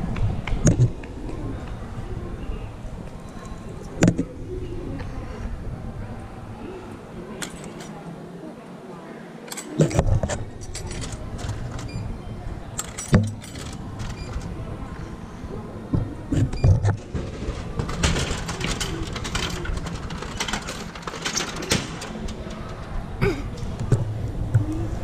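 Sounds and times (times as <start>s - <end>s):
clicks and knocks: 7.4s - 8.0s, 9.5s - 12.1s, 12.7s - 14.5s, 15.9s - 23.1s.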